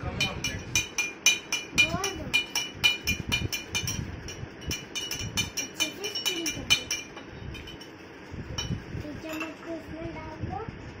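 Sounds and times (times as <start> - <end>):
spoon clinking in glass jar: 0.2 - 8.0.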